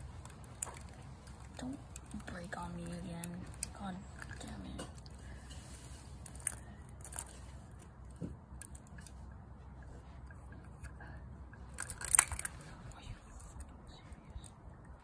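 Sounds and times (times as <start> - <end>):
plastic toy clicks and clacks: 0.0 - 5.1, 10.3 - 12.7
plastic toy clatter: 0.0 - 9.3, 10.1 - 13.7.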